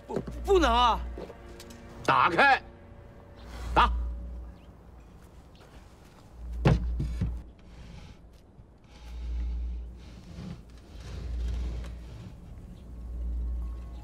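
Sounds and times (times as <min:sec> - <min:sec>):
wooden lid scraping: 0:06.7 - 0:13.0.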